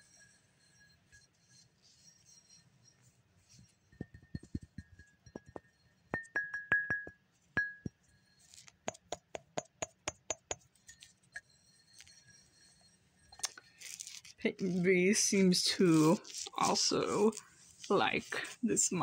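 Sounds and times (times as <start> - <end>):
mug ringing like a bell: 0.0 - 13.5
quick taps on mug: 4.0 - 5.6, 6.2 - 7.9
dull knocks on ceramic mug: 4.0 - 8.0, 8.9 - 10.6.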